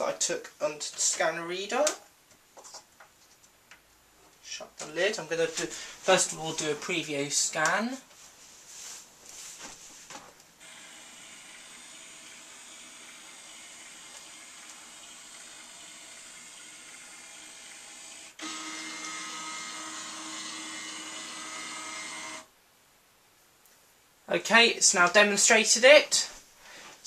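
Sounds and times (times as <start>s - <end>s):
scanner motor whirring: 10.6s - 22.5s.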